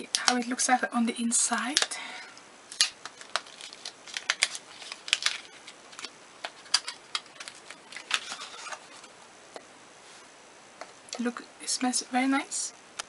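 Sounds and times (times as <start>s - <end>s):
paper packaging crackling: 2.7s - 9.2s.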